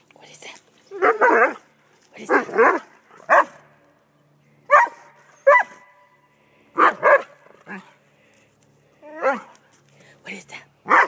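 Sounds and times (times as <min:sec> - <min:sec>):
dog barking: 0:02.3 - 0:03.6, 0:04.7 - 0:06.0, 0:06.8 - 0:07.4.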